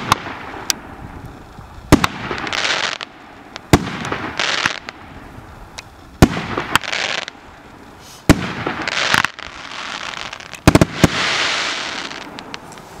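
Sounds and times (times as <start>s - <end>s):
firework stars crackling: 0.0s - 13.0s
firework shells bursting: 8.0s - 13.0s.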